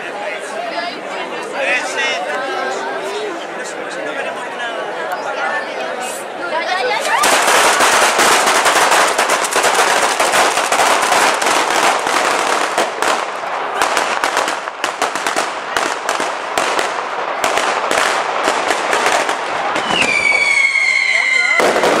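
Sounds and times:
firecrackers crackling and banging: 0:07.0 - 0:22.0.

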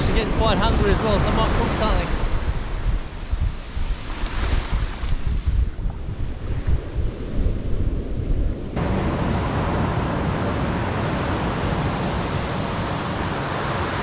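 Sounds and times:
ocean surf breaking: 0:00.0 - 0:05.8, 0:08.8 - 0:14.0
wind buffeting microphone: 0:00.0 - 0:14.0.

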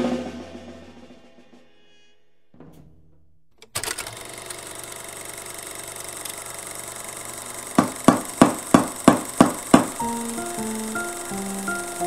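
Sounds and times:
sharp beats: 0:07.8 - 0:12.0
background music: 0:09.9 - 0:12.0.

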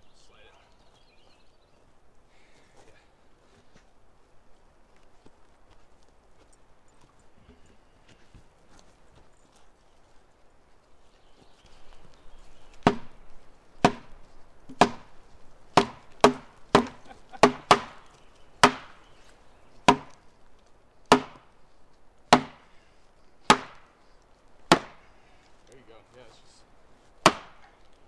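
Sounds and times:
axe chopping wood: 0:12.8 - 0:13.2, 0:13.8 - 0:19.0, 0:19.8 - 0:20.2, 0:21.1 - 0:21.5, 0:22.3 - 0:22.7, 0:23.4 - 0:23.9, 0:24.7 - 0:25.1, 0:27.2 - 0:27.8.

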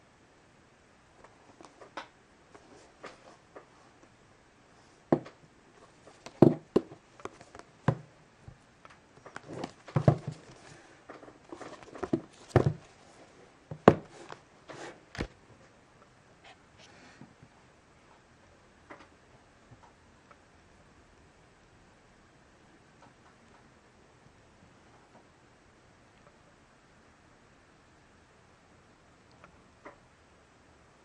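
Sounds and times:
cardboard box handled on table: 0:09.4 - 0:10.8, 0:11.5 - 0:13.0, 0:13.7 - 0:15.0.

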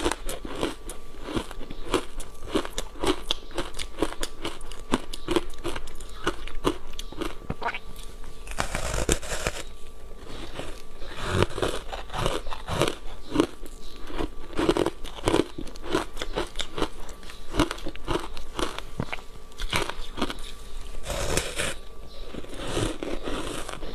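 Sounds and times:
crunching and chewing ice: 0:00.0 - 0:23.9.

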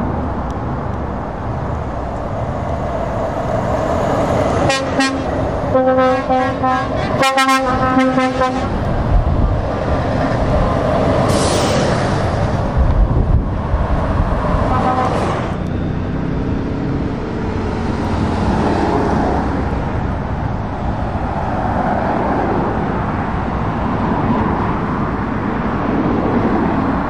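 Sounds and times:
lorries and cars driving past: 0:00.0 - 0:27.0
vehicle horn tooting: 0:04.7 - 0:08.7, 0:14.7 - 0:15.4.

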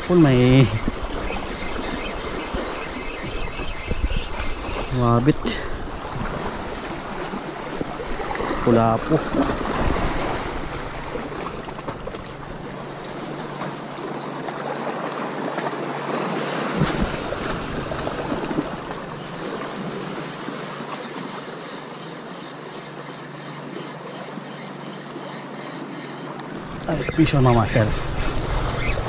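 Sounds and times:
wind on microphone: 0:00.0 - 0:12.6, 0:26.4 - 0:29.0
small waves washing on rocks: 0:04.3 - 0:21.6.

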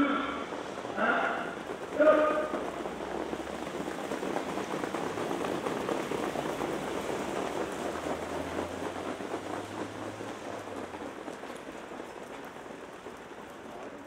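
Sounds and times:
horse hoofbeats on dirt track: 0:00.0 - 0:14.0.

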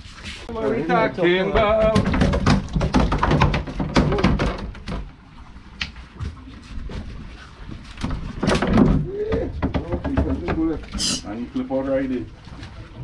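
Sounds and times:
fish thrashing in plastic crate: 0:01.6 - 0:05.1, 0:07.9 - 0:11.0.

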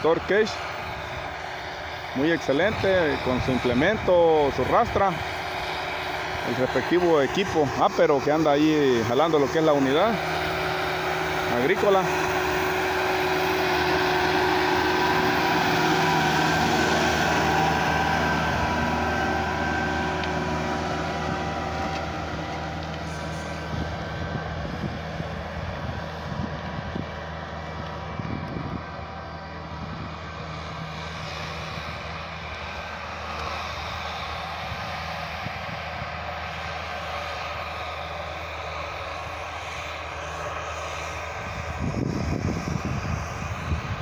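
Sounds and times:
tractor diesel engine under load: 0:00.0 - 0:44.0.

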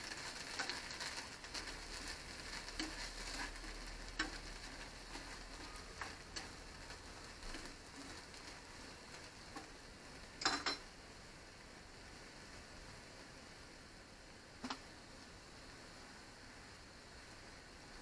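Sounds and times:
faint steady hiss: 0:00.0 - 0:18.0
food sizzling in a frying pan: 0:00.0 - 0:18.0
chopsticks clicking against pan: 0:02.7 - 0:08.2.

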